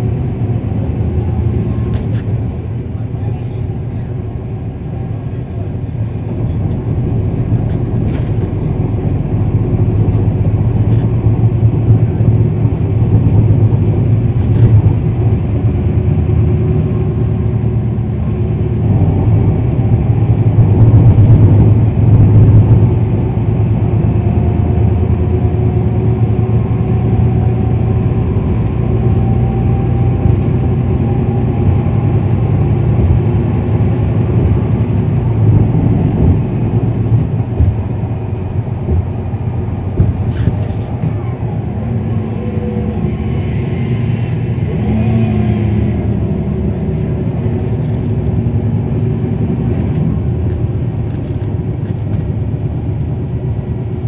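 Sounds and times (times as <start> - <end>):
bus diesel engine drone: 0.0 - 54.0.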